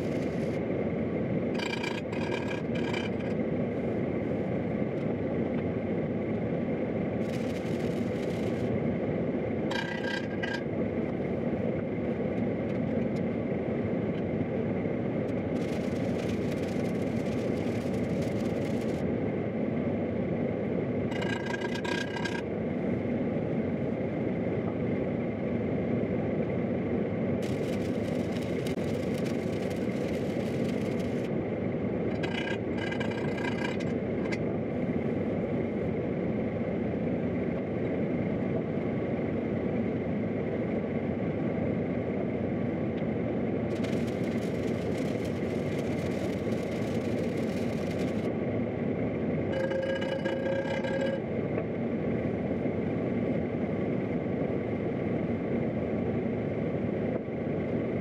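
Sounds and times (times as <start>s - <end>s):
welding arc hiss and crackle: 0.0s - 0.6s, 7.2s - 8.7s, 15.3s - 19.1s, 27.4s - 31.3s, 43.7s - 48.3s
heater roaring: 0.0s - 37.5s, 42.3s - 53.0s.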